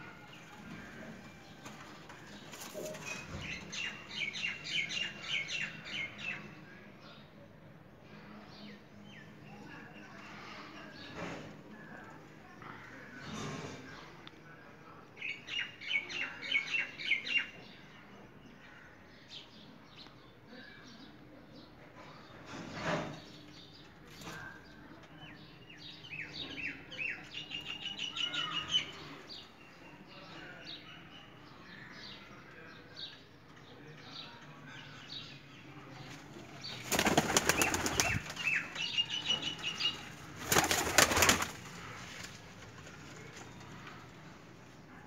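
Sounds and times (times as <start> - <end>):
pigeons flapping wings: 36.7 - 38.4, 40.4 - 41.7.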